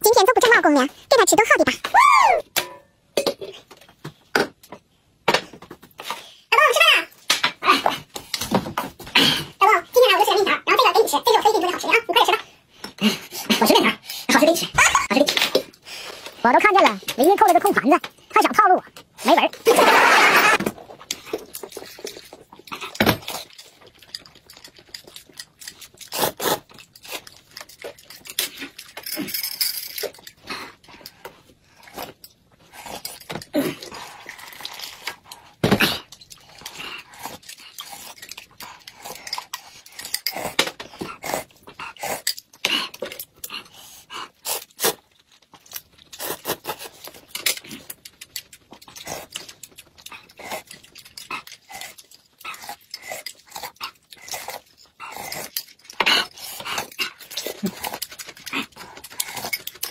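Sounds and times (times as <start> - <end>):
food chewing: 18.9 - 29.3, 30.0 - 59.9
slurping soup: 25.9 - 27.5.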